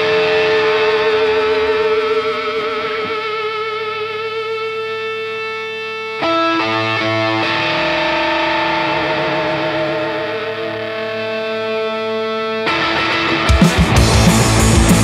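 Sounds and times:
electric guitar: 0.0 - 15.0.

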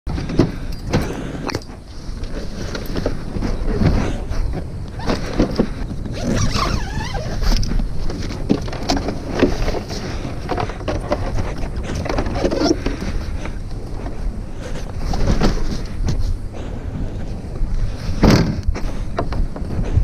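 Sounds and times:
zip opening: 6.1 - 7.7.

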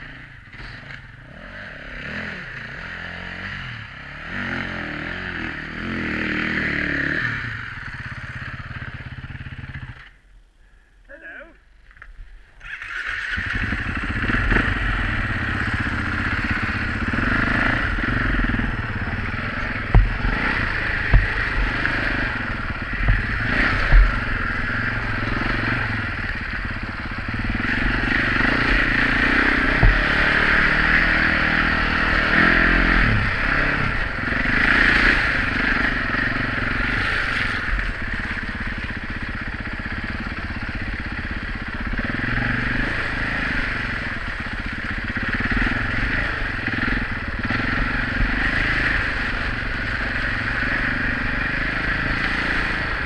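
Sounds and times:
motorcycle engine running: 0.0 - 10.2, 12.6 - 53.0
sharp knocks over bumps: 19.8 - 22.0, 23.0 - 24.4, 29.4 - 30.6.

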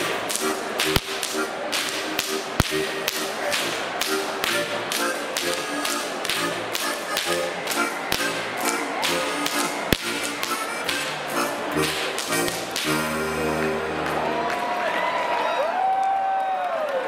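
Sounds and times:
whip cracks: 0.0 - 13.2
live band music: 0.0 - 14.4.

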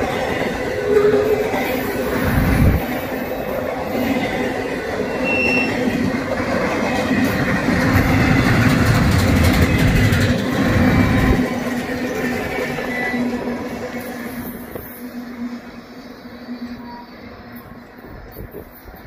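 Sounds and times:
train wheels rumbling on rail: 0.0 - 19.0
high wheel squeal: 5.0 - 5.9, 12.6 - 17.7.

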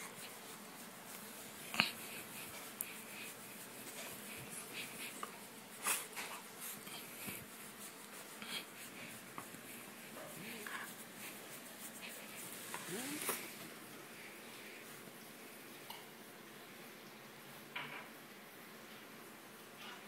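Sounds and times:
fabric rustling and scratching: 0.0 - 13.8.

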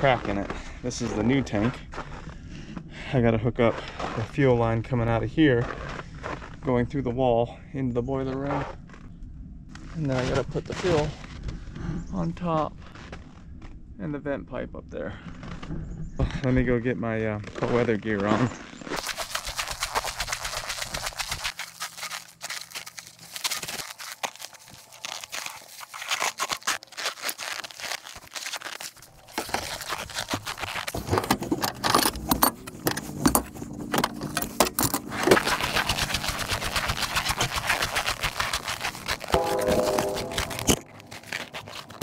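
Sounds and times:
footsteps in snow: 17.6 - 31.4, 35.0 - 42.0
rummaging for gear: 21.6 - 42.0.

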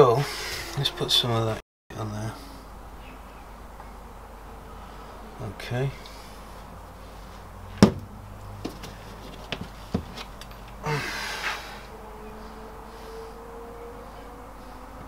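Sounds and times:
rustling scrape: 8.7 - 10.4.

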